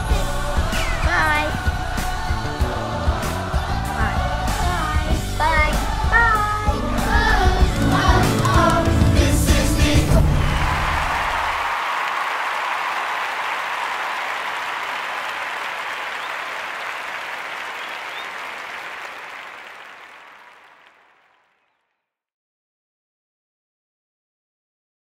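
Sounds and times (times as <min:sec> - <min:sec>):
crowd applause: 0:07.8 - 0:09.1, 0:10.0 - 0:21.7.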